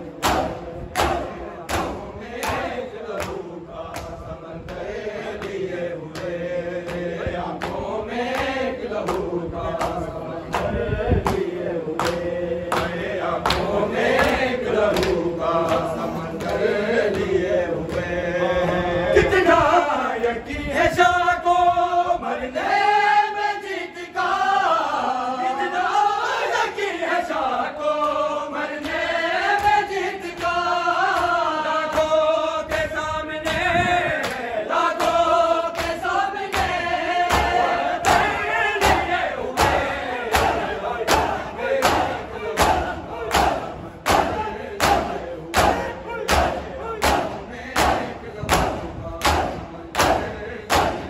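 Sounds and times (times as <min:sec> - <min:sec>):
rhythmic chest-beating slaps: 0:00.0 - 0:21.2, 0:26.5 - 0:51.0
men chanting a lament: 0:00.0 - 0:51.0.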